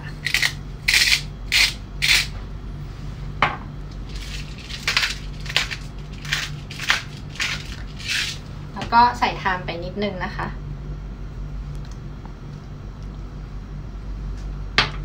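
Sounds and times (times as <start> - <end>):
pepper grinder grinding: 0.0 - 2.3, 4.1 - 8.5.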